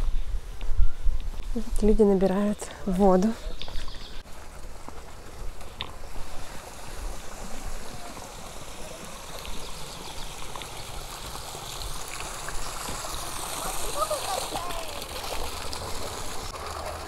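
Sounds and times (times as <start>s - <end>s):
spring water running: 4.2s - 17.0s.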